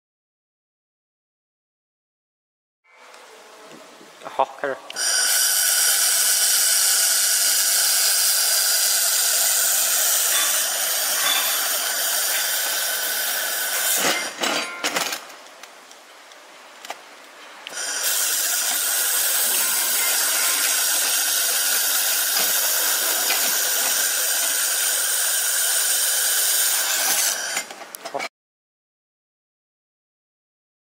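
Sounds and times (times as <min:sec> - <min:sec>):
laser welder hissing and crackling: 0:04.9 - 0:14.4, 0:17.7 - 0:27.7.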